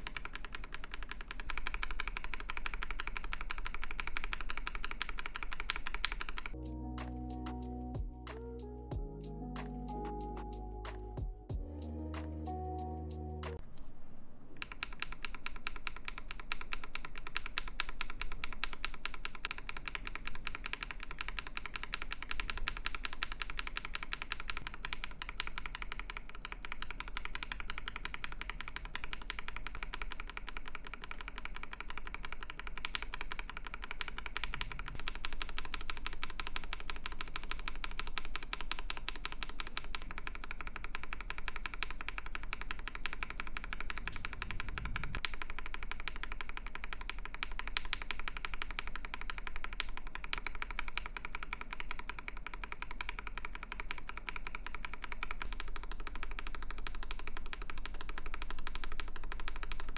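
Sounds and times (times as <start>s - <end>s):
typing on mechanical keyboard: 0.0s - 6.6s, 14.6s - 59.9s.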